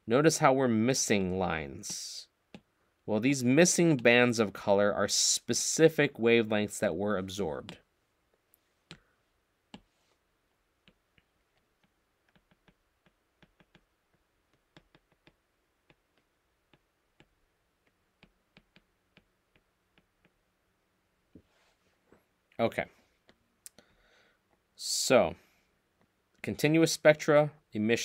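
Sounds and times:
stylus clicking on glass screen: 0:10.8 - 0:20.5.

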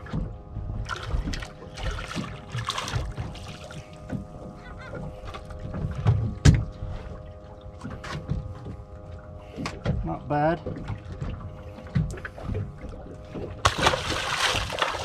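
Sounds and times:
fish splashing at surface: 0:13.6 - 0:15.0.

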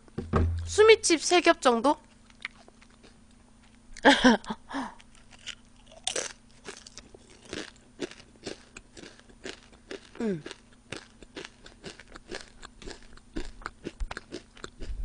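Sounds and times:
crunching potato chip: 0:05.0 - 0:15.0
person humming: 0:10.2 - 0:10.6.

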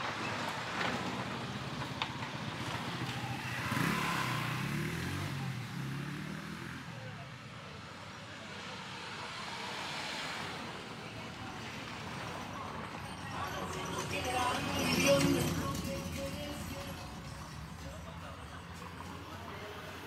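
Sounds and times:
vehicle engine passing: 0:02.6 - 0:07.1.

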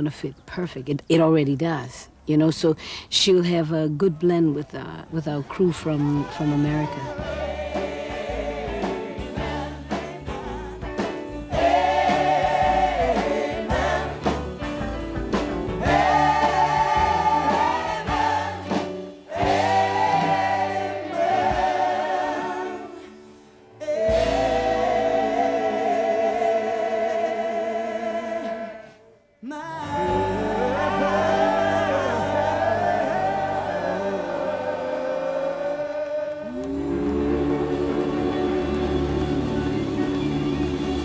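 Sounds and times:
gospel choir singing: 0:05.8 - 0:41.0
band with drums and bass: 0:06.9 - 0:20.8, 0:24.1 - 0:25.0.

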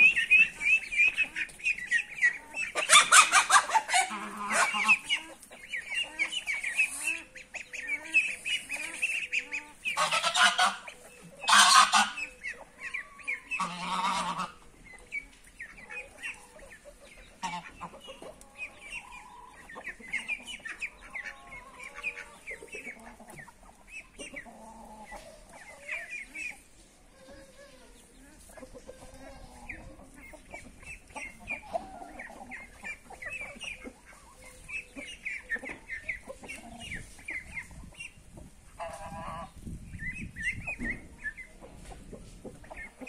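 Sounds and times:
chickens clucking: 0:00.0 - 0:43.0
goose honking: 0:02.4 - 0:05.4, 0:06.0 - 0:12.4, 0:13.5 - 0:14.6, 0:17.4 - 0:18.0
roosters crowing: 0:11.5 - 0:12.2.

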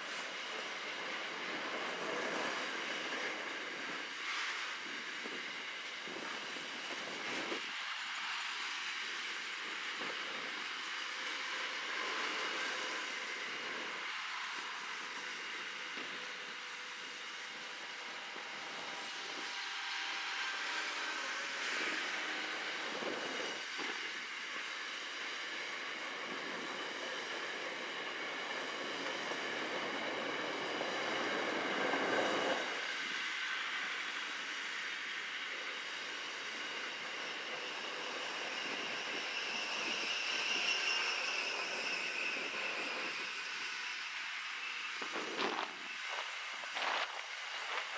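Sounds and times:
train wheels rolling on rail: 0:00.0 - 0:47.9
high wheel squeal: 0:35.7 - 0:47.9.

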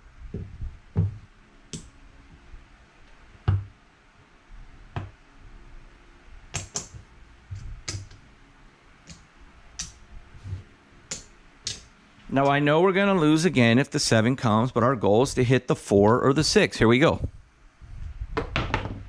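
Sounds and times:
casino chips clicking: 0:11.1 - 0:11.9.

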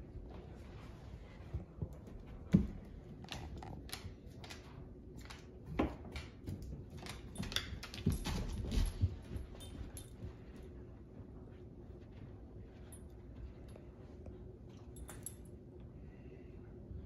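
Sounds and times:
dogs playing thumps and scuffles: 0:00.0 - 0:15.5.

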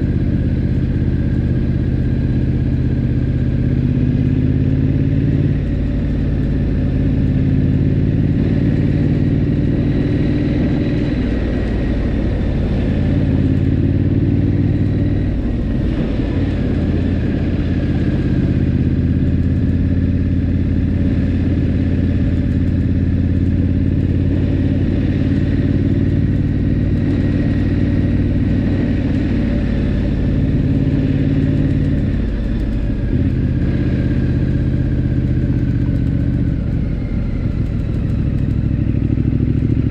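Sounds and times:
motorcycle engine cruising: 0:00.0 - 0:39.9
wind and road rush: 0:00.0 - 0:39.9.

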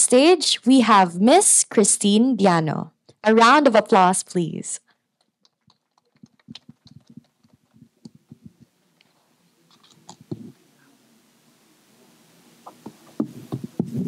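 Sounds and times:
microphone handling clicks and knocks: 0:05.2 - 0:09.1, 0:09.7 - 0:10.6, 0:12.7 - 0:14.0.

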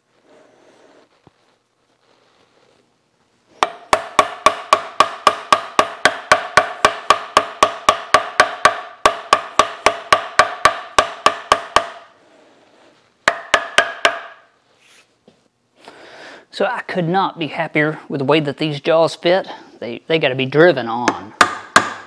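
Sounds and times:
hammer blows ringing on metal: 0:03.6 - 0:12.1, 0:13.3 - 0:14.5, 0:21.4 - 0:22.0.

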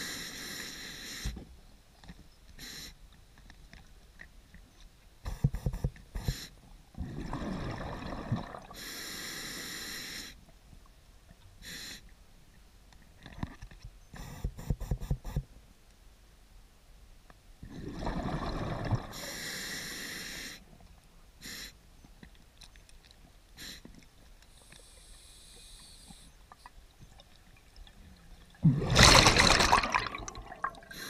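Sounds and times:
hissing inhale through regulator: 0:00.0 - 0:01.4, 0:02.6 - 0:03.0, 0:08.7 - 0:10.4, 0:11.6 - 0:12.1, 0:19.1 - 0:20.7, 0:21.4 - 0:21.8, 0:23.6 - 0:23.9, 0:24.5 - 0:26.4, 0:30.8 - 0:31.0
exhaled air bubbling: 0:07.0 - 0:08.8, 0:17.6 - 0:19.2, 0:26.5 - 0:31.0.

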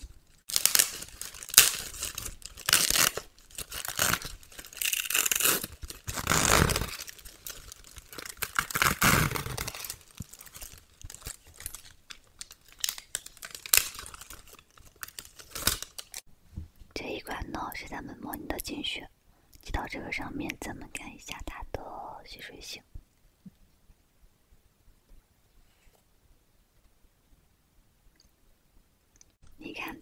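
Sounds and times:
plastic wrapper crinkling and tearing: 0:00.0 - 0:16.3.

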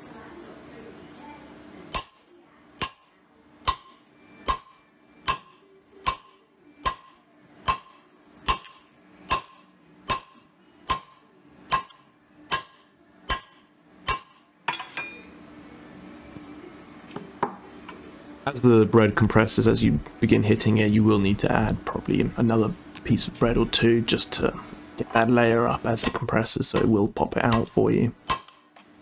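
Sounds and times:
hammer striking steel rod: 0:02.8 - 0:15.1, 0:26.8 - 0:28.6.

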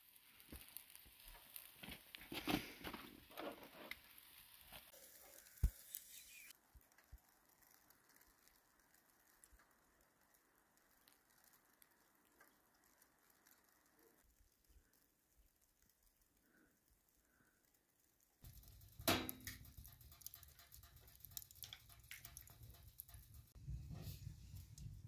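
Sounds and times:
faint crackling at a grill: 0:00.0 - 0:25.0
faint ticks: 0:06.5 - 0:23.6.

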